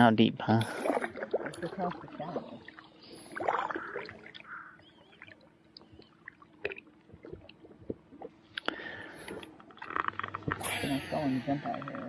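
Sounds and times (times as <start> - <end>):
water splashing and dripping: 0.6 - 11.2
faint bird chirps: 2.4 - 6.2.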